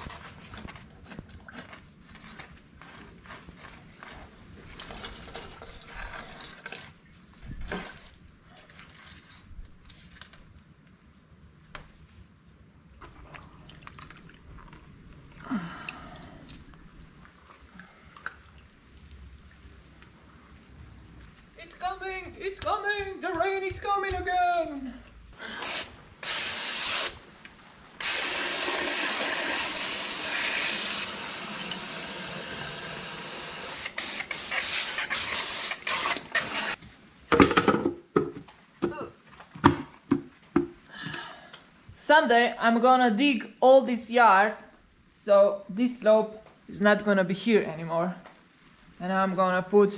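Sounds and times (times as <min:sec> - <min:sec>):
hose nozzle spraying water: 0:25.6 - 0:27.2, 0:28.0 - 0:36.8.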